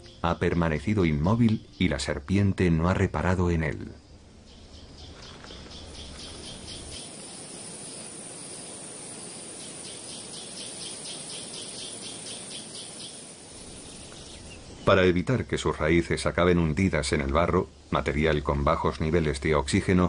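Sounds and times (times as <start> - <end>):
high chirping: 0.0 - 15.3
steady hiss: 0.0 - 20.0.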